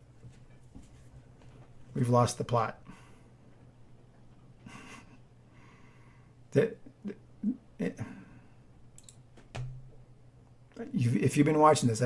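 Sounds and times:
man making wordless sounds: 6.5 - 8.3, 10.7 - 12.0
faint clicks: 8.9 - 9.2.

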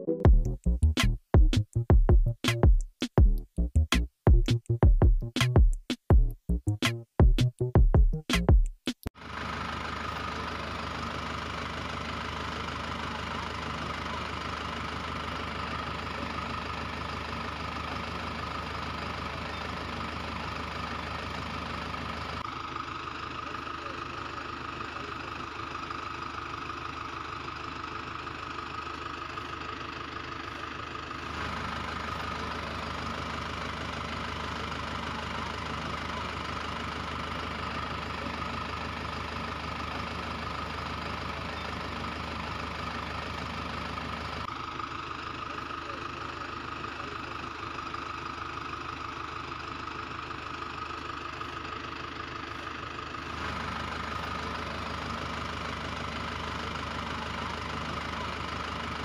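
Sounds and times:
electronic music with drum beat: 0.0 - 9.1
engine idling: 9.2 - 59.0.

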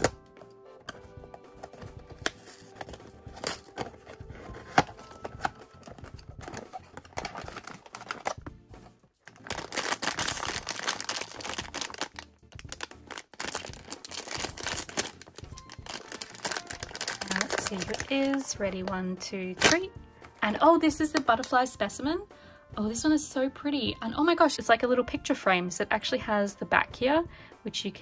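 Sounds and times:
plastic bag crinkling: 2.4 - 8.4, 9.3 - 18.9.

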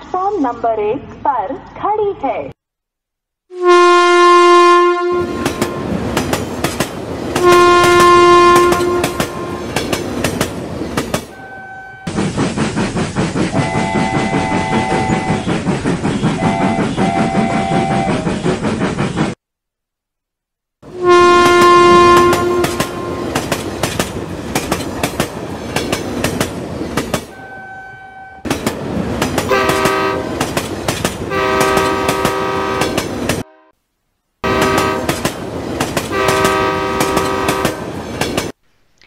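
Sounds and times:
train horn blowing long blasts: 3.5 - 6.0, 7.4 - 9.8, 11.4 - 12.1, 13.6 - 15.4, 16.4 - 18.2, 20.9 - 23.4, 27.4 - 28.4, 29.5 - 30.4, 31.3 - 33.7, 34.4 - 35.2, 36.1 - 37.9
wheels clattering on rail joints: 5.4 - 11.4, 22.2 - 27.4, 28.5 - 33.4, 34.6 - 38.6.

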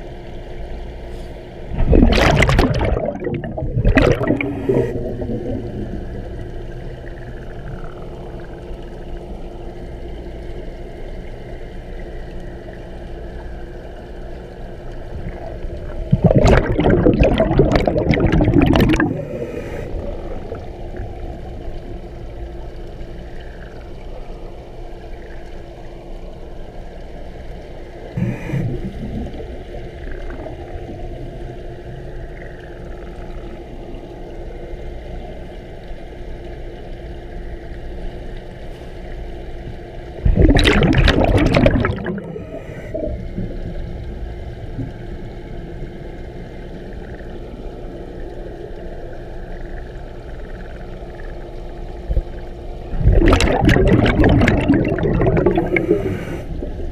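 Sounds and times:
steady low underwater hum: 0.0 - 56.9
exhaled bubbles rushing: 1.6 - 10.2, 14.6 - 26.0, 28.1 - 33.5, 40.2 - 56.9.

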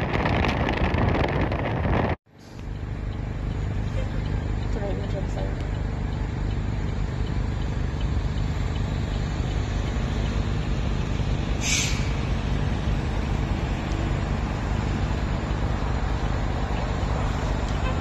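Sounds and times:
fire engine rumbling: 0.0 - 18.0
air brake hiss: 11.6 - 12.2.

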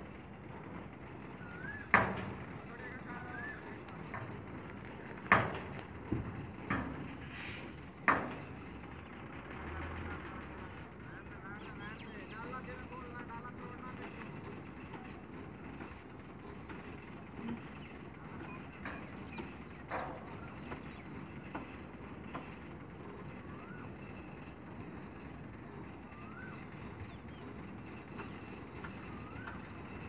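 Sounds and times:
diesel truck engine idling: 0.0 - 22.3.

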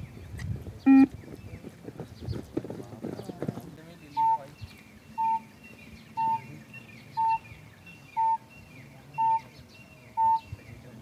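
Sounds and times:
birds chirping faintly: 0.0 - 11.0
short high beeps: 0.9 - 1.1, 9.2 - 9.5, 10.2 - 10.5.

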